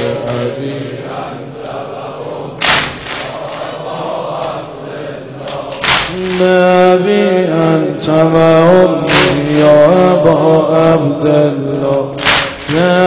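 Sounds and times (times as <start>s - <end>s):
sharp percussive strike: 2.6s - 3.4s, 5.8s - 6.6s, 9.1s - 9.7s, 12.2s - 13.0s.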